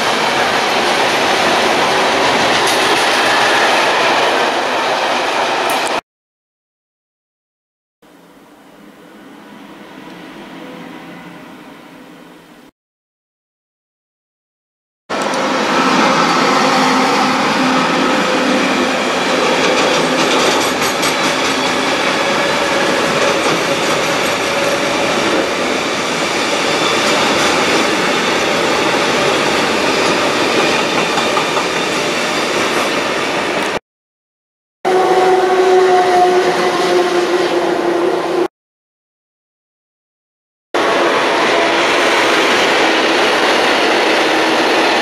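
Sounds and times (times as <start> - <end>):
freight train rumbling past: 0.0 - 6.0, 15.1 - 33.8, 34.9 - 38.5, 40.8 - 45.0
electric locomotive two-note whine: 8.0 - 12.7, 34.9 - 38.5.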